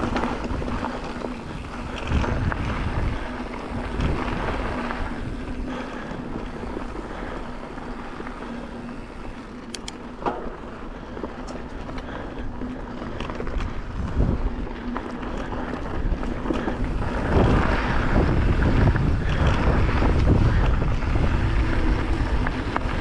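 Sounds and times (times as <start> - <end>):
bike tyres rolling on dirt: 0.0 - 23.0
wind buffeting microphone: 0.0 - 23.0
sharp clicks: 9.6 - 10.1.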